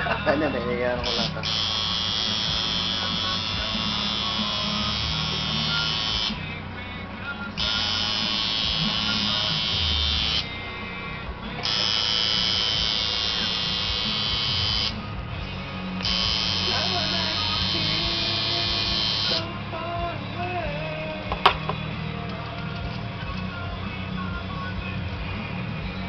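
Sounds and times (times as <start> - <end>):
background music: 0.0 - 26.0
tattoo machine buzzing: 1.0 - 6.4, 7.6 - 10.5, 11.6 - 15.2, 15.9 - 19.5.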